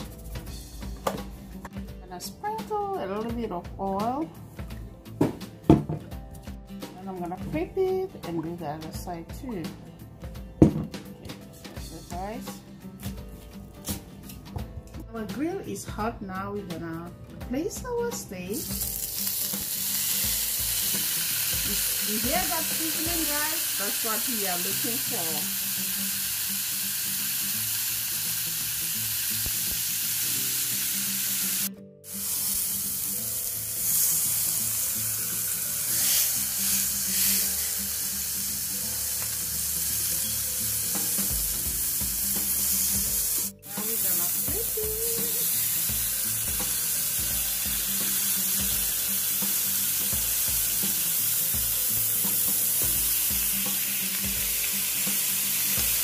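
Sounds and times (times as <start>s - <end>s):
steaks sizzling on grill: 18.5s - 56.0s.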